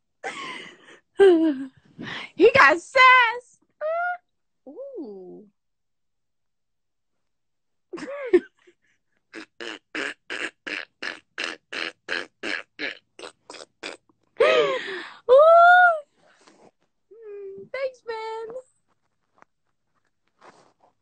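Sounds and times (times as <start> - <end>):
woman laughing hard: 8.0 - 8.6, 14.4 - 15.5.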